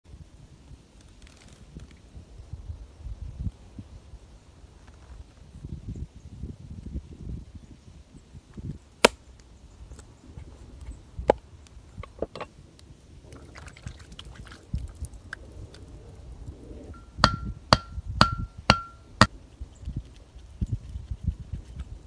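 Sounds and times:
sharp strikes with ringing tone: 17.0s - 19.3s.

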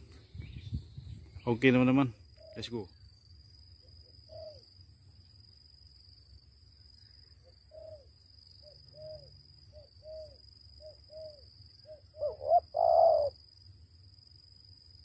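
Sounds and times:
high insect trill: 0.0s - 15.0s
dove cooing: 4.3s - 4.6s, 7.7s - 13.4s.

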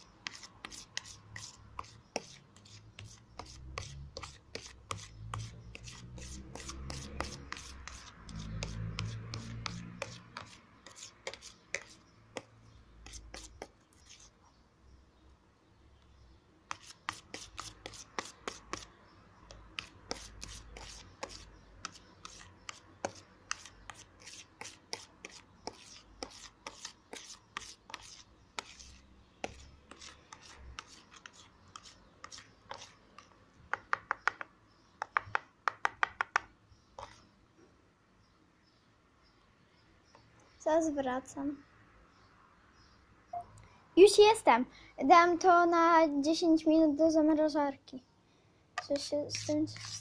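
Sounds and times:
metal spoon stirring thick mixture: 0.0s - 14.4s, 16.7s - 18.9s, 19.5s - 33.4s, 48.8s - 50.0s.

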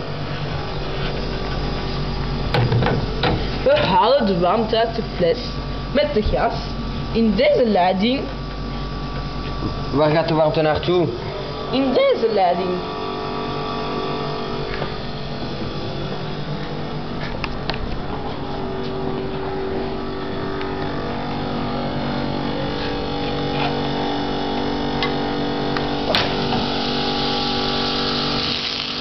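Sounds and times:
small motor humming: 0.0s - 29.0s.

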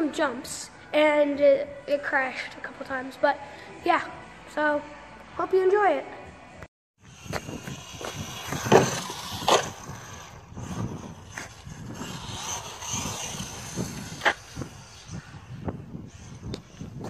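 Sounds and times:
electric motor high whine: 7.0s - 17.0s
tyre noise on asphalt: 7.0s - 17.0s.

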